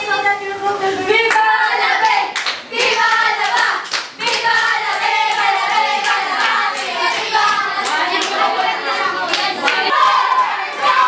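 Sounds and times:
teenagers chanting a group yell: 0:01.4 - 0:11.0
hand clapping: 0:02.0 - 0:08.5, 0:09.3 - 0:10.1.

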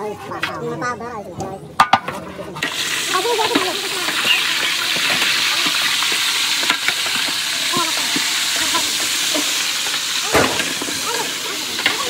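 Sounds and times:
food sizzling in frying: 0:02.6 - 0:12.0.

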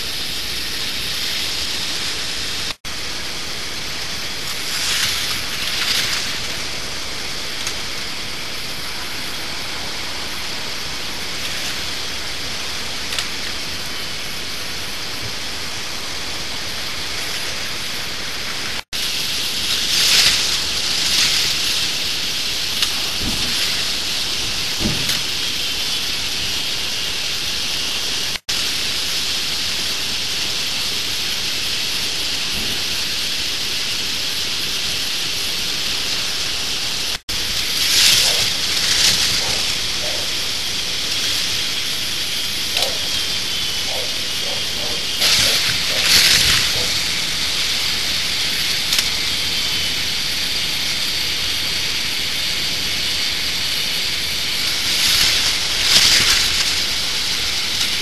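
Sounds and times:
toy roller coaster rattling: 0:37.4 - 0:58.0.

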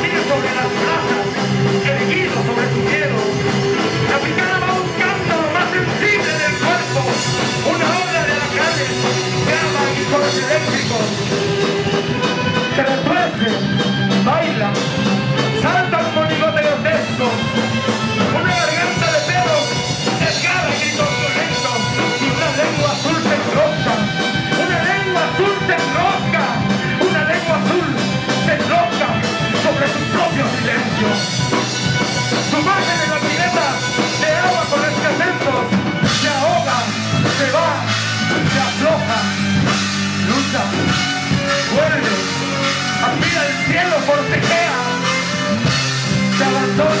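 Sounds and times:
drum kit: 0:00.0 - 0:47.0
electric guitar: 0:00.0 - 0:47.0
violin: 0:00.0 - 0:47.0.

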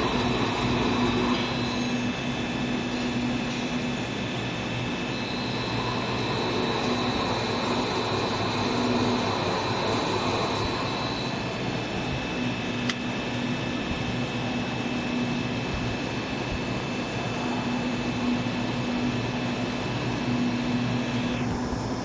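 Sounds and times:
high conveyor whine: 0:00.0 - 0:22.0
machine humming: 0:00.0 - 0:22.0
sharp click: 0:12.8 - 0:13.1.

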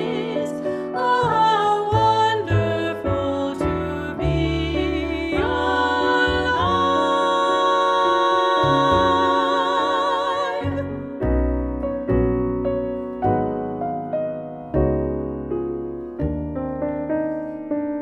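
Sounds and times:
women singing in harmony: 0:00.0 - 0:11.2
double bass: 0:00.0 - 0:18.0
piano: 0:00.0 - 0:18.0.

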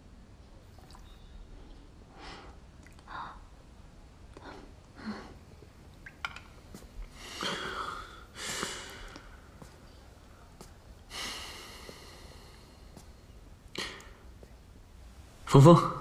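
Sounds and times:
soft breathy exhales: 0:07.1 - 0:09.7, 0:11.1 - 0:13.2.

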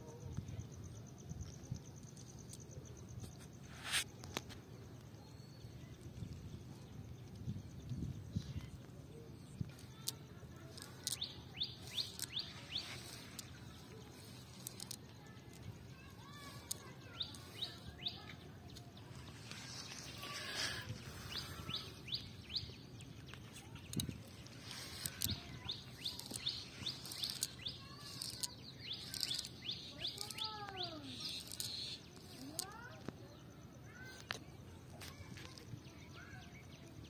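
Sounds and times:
outdoor background noise: 0:00.0 - 0:37.0
small birds chirping: 0:00.0 - 0:37.0
light clicks: 0:09.5 - 0:33.2.

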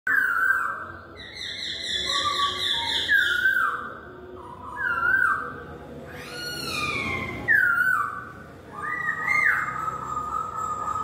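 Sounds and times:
bird whistling calls: 0:00.1 - 0:04.0, 0:04.6 - 0:11.0.

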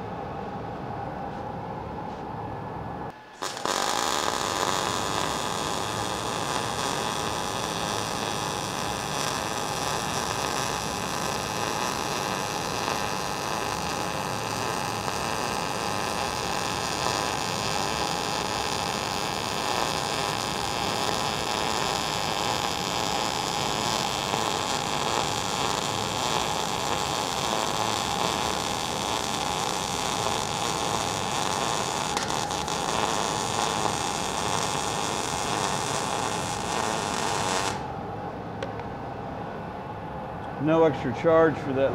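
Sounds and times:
welding arc sizzling hiss: 0:03.4 - 0:37.9.

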